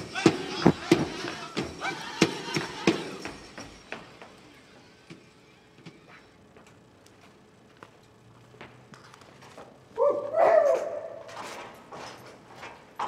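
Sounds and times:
drum beats: 0.0 - 4.4.

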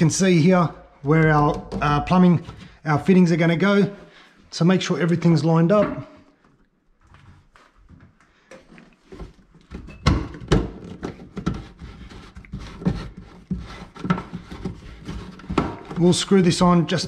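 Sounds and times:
plastic waste fitting handled: 5.7 - 17.0.

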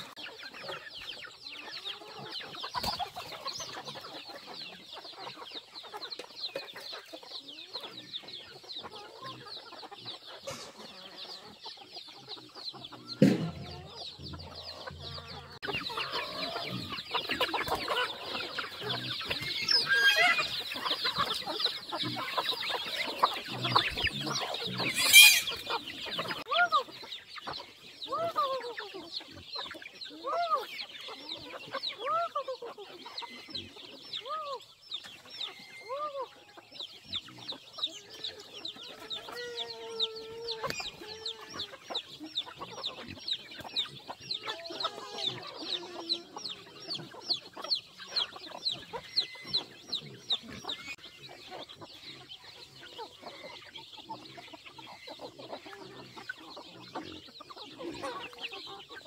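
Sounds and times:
chickens clucking: 0.0 - 59.0
chicks peeping: 0.0 - 59.0
sharp knock: 13.2 - 13.7.

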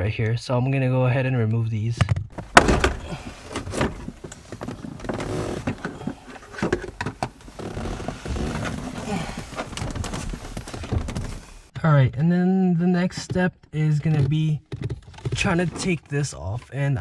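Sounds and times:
plastic trim clicking and creaking: 2.4 - 11.7.

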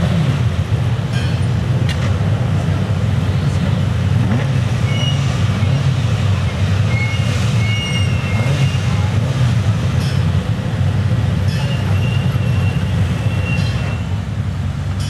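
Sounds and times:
race car engines rumbling: 0.0 - 15.0
short high-pitched squeals: 6.5 - 9.0.

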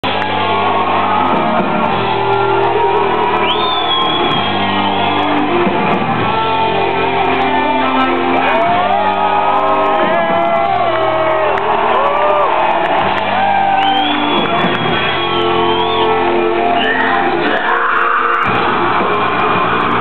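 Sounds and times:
live metal band playing: 0.0 - 20.0.

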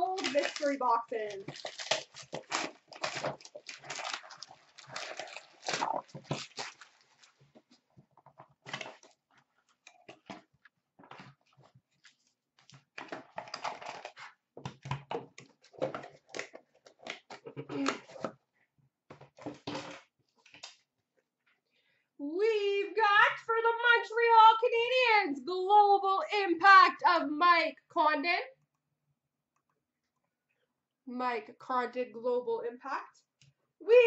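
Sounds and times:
foil wrapping paper crinkling: 0.0 - 7.4
cardboard packs rustling: 0.0 - 7.8.

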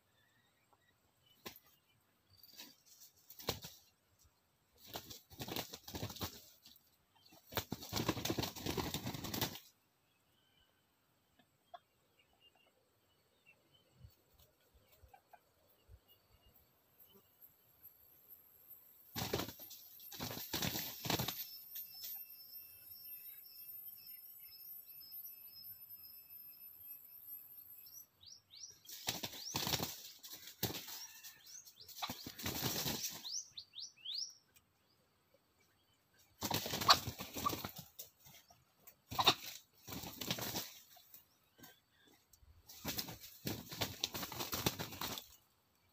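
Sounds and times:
junglefowl flapping wings: 2.4 - 3.9, 4.8 - 9.7, 19.2 - 21.5, 28.8 - 33.3, 36.4 - 38.5, 39.1 - 41.7, 42.7 - 45.4.

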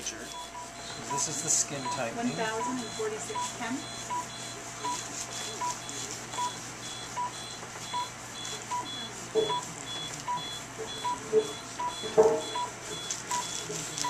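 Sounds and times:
laser console beeping: 0.0 - 14.0.

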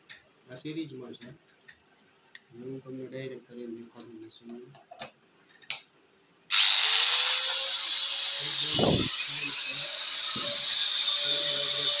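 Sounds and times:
electric angle grinder whining: 6.5 - 12.0.

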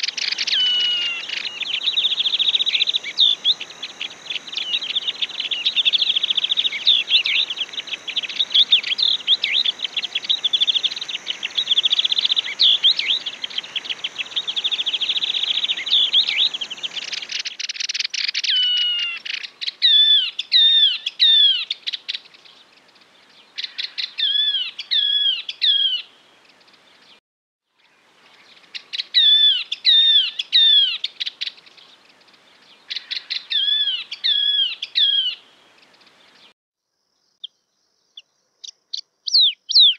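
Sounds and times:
birds chattering: 0.0 - 17.5
background hiss: 0.0 - 18.4.

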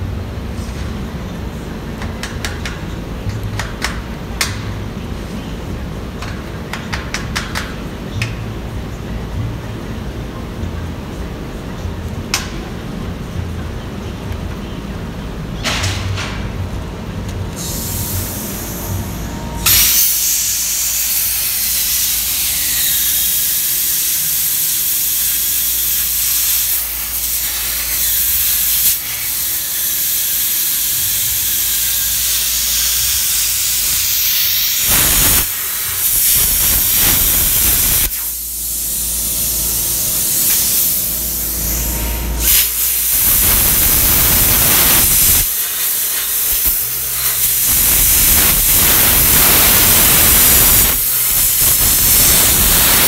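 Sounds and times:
plasma cutter hissing: 17.6 - 53.0.

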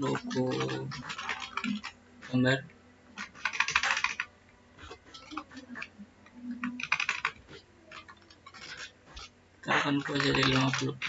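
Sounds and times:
computer keyboard keystrokes: 0.1 - 1.9, 3.2 - 4.3, 6.6 - 9.3.

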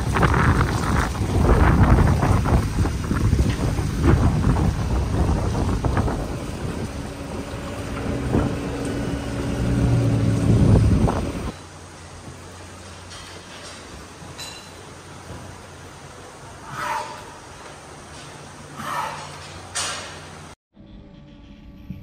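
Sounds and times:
wind buffeting microphone: 0.0 - 11.6
tractor engine running: 0.0 - 14.3.

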